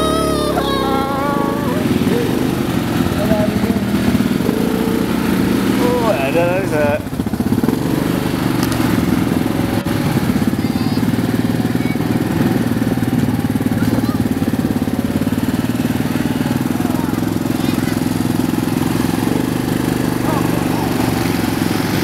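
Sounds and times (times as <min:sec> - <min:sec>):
quad bike engine running: 0:00.0 - 0:22.0.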